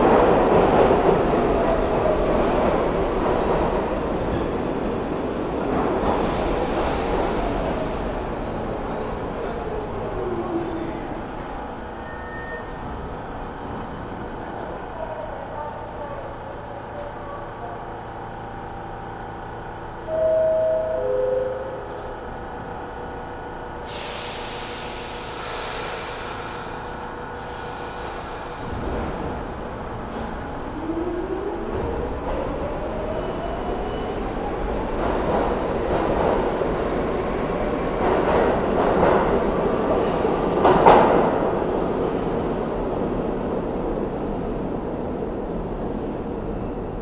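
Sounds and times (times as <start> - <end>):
subway doors closing: 0.0 - 47.0
subway equipment humming: 0.0 - 47.0
loud hiss of air: 23.8 - 28.8.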